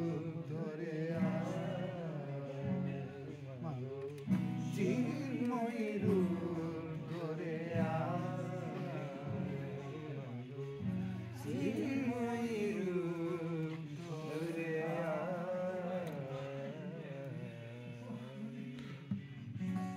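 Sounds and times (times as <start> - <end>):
men singing devotional song: 0.0 - 19.5.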